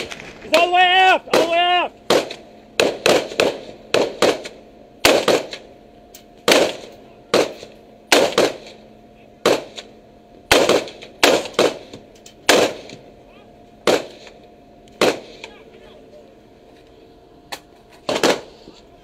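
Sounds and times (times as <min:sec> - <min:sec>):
rifle gunshots: 0:01.3 - 0:05.7, 0:06.4 - 0:08.8, 0:09.4 - 0:13.0, 0:13.8 - 0:15.6, 0:18.0 - 0:18.6.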